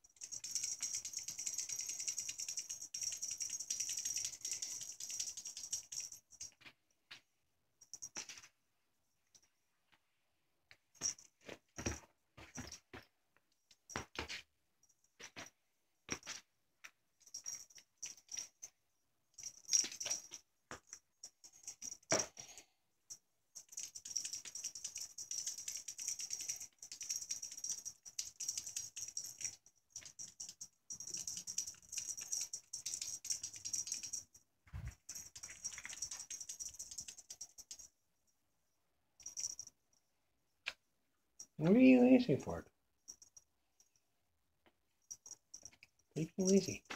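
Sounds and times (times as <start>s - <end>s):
collar tag jingling: 0.0s - 6.7s, 17.2s - 38.0s, 39.2s - 40.0s, 41.4s - 44.1s, 44.9s - 46.9s.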